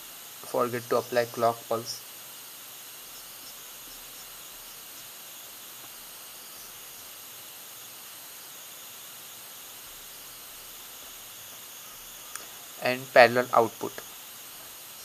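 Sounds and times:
recording noise hiss: 0.0s - 15.0s.

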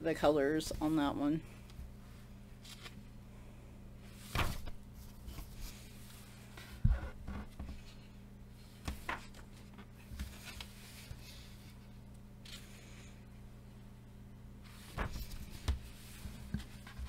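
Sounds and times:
paper pages rustling: 2.6s - 3.0s, 4.1s - 6.7s, 8.8s - 11.7s, 14.6s - 17.0s.

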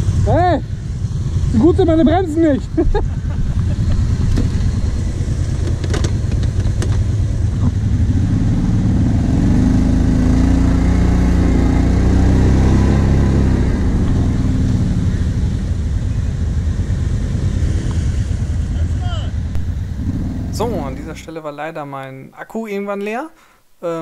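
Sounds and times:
atv engine revving: 0.0s - 15.8s, 19.5s - 21.3s.

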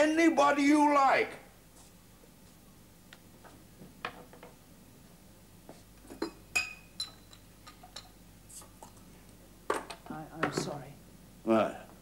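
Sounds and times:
glass bottles clinking: 6.2s - 8.1s.

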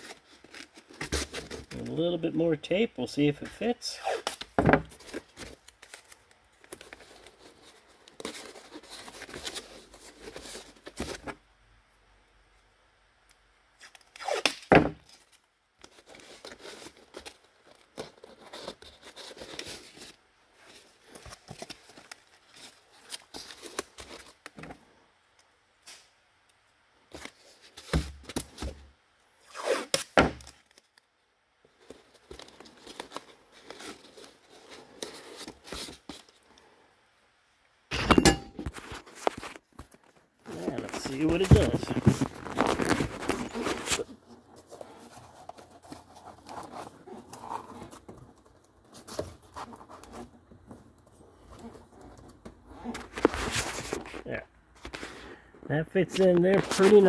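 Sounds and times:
cardboard rustling: 0.0s - 2.0s, 4.3s - 11.4s, 14.8s - 24.8s, 31.8s - 36.4s, 38.6s - 55.2s
tape pulled off roll and torn: 13.7s - 20.2s, 29.4s - 31.1s.

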